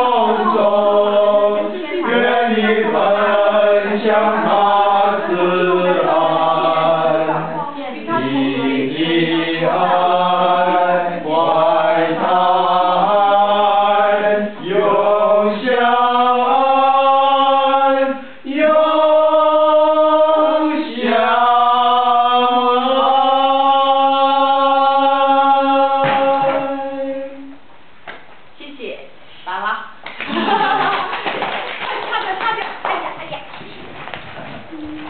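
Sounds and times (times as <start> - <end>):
choir singing long notes: 0.0 - 27.6.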